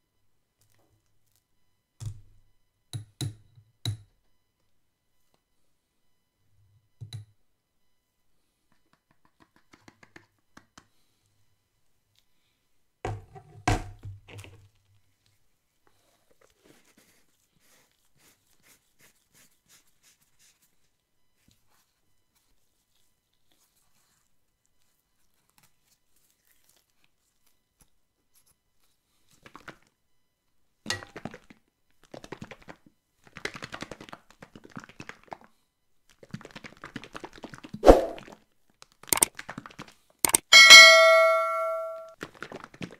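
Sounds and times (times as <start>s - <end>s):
kitchen items knocking on tabletop: 13.1s - 14.1s.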